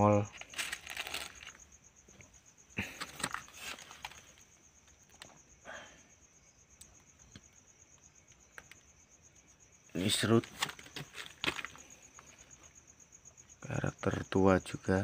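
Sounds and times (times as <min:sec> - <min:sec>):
crickets chirping: 0:00.0 - 0:15.0
handling rustles and knocks: 0:00.3 - 0:05.4, 0:10.0 - 0:12.8.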